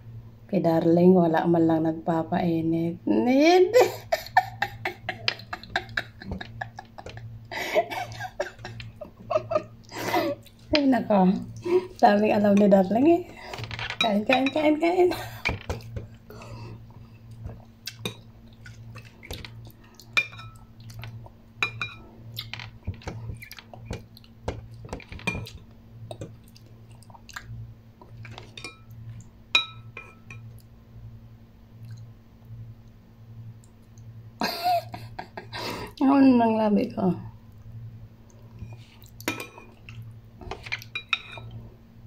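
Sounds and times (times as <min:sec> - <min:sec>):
steady low hum: 0:00.0 - 0:42.0
metal spoon clinking on bowl: 0:21.6 - 0:22.0, 0:29.5 - 0:30.5, 0:40.8 - 0:41.5
chewing: 0:26.1 - 0:28.4.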